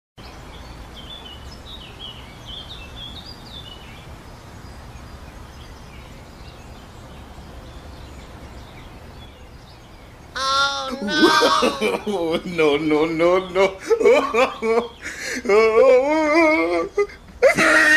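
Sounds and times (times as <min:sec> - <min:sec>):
small bird chirping: 0:00.2 - 0:11.8
steady background noise: 0:00.2 - 0:17.9.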